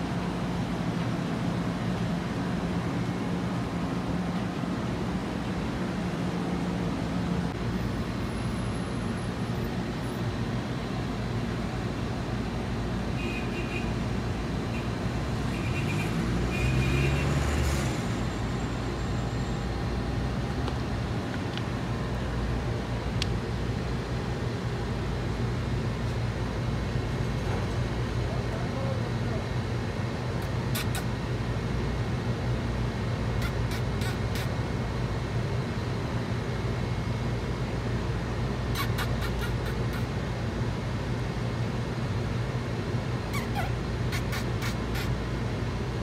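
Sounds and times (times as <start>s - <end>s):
road traffic hum: 0.0s - 46.0s
vehicle passing: 15.1s - 18.5s.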